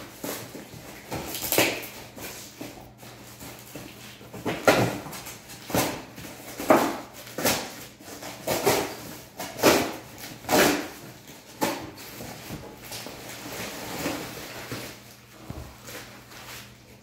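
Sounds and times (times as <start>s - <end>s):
packing tape and cardboard tearing: 0.0s - 16.9s.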